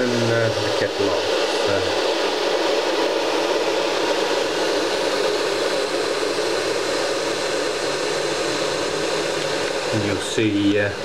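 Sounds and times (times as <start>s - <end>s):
fan whirring: 0.0s - 11.0s.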